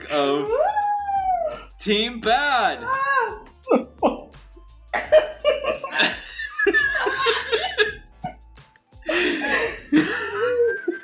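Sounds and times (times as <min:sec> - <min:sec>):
background music: 0:00.0 - 0:11.0
voices laughing: 0:05.0 - 0:08.0, 0:09.1 - 0:11.0.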